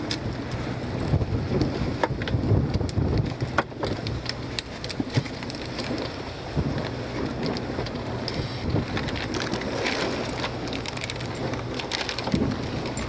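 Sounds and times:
small clicks and knocks: 0:00.0 - 0:06.2
water splashing against boat: 0:00.0 - 0:13.0
wind: 0:00.0 - 0:13.0.

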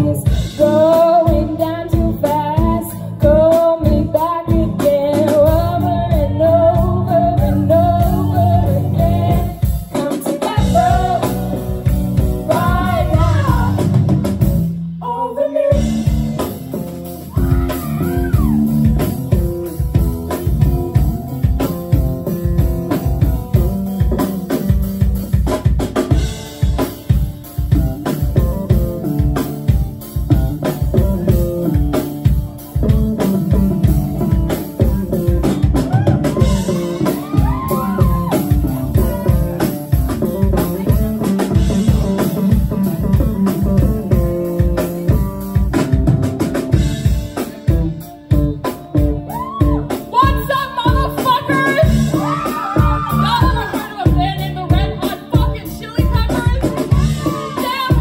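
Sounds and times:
woman singing into a microphone: 0:00.0 - 0:11.7, 0:12.3 - 0:14.0, 0:15.0 - 0:16.1, 0:49.6 - 0:58.0
live rock band playing: 0:00.0 - 0:58.0.

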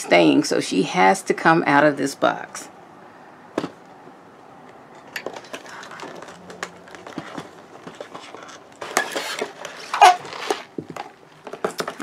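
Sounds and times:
packaging rustling: 0:05.2 - 0:12.0.

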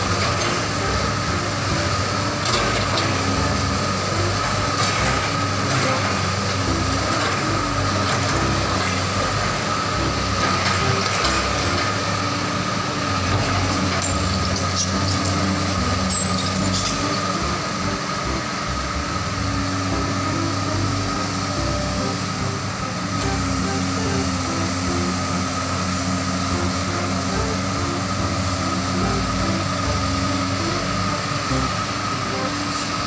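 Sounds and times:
excavator diesel engine under load: 0:00.0 - 0:33.0
high whine: 0:00.0 - 0:33.0.

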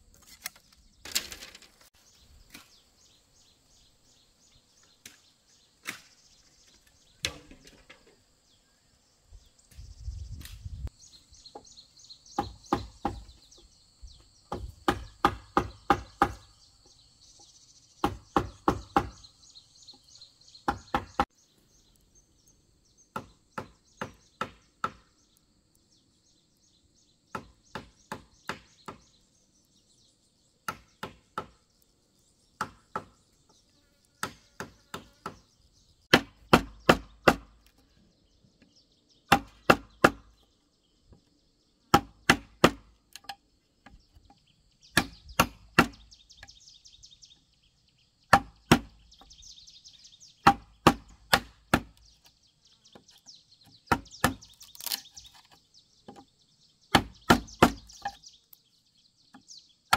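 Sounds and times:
bamboo being chopped: 0:02.5 - 0:02.8, 0:05.0 - 0:06.2, 0:14.5 - 0:16.5, 0:18.0 - 0:19.2, 0:20.7 - 0:21.3, 0:23.1 - 0:25.2, 0:27.3 - 0:29.0, 0:30.6 - 0:31.6, 0:34.2 - 0:35.4, 0:36.1 - 0:37.8, 0:39.3 - 0:40.3, 0:41.9 - 0:44.0, 0:44.9 - 0:46.1, 0:48.3 - 0:49.3, 0:50.4 - 0:52.2, 0:53.6 - 0:56.3, 0:56.9 - 0:58.2.

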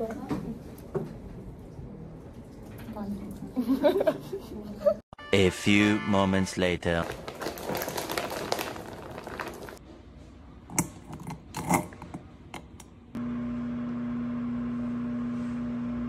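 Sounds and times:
microwave oven humming: 0:12.0 - 0:16.0.

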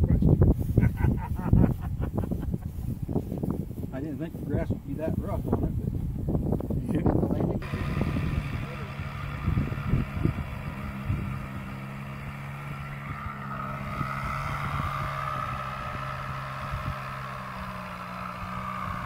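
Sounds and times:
wind thumps on microphone: 0:00.0 - 0:08.6
model airplane engine idling: 0:07.6 - 0:19.0.

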